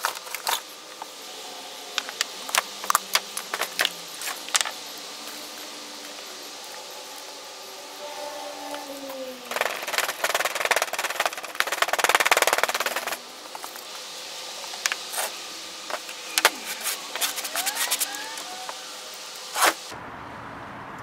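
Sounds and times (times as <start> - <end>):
rapid clatter of knocks and scraping: 9.5 - 13.8.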